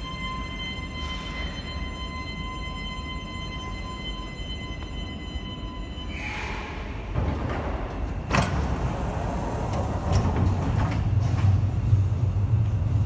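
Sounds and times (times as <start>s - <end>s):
steady high tone: 0.0s - 6.8s
low hum inside train car: 0.0s - 13.0s
train doors sliding open: 6.1s - 12.0s.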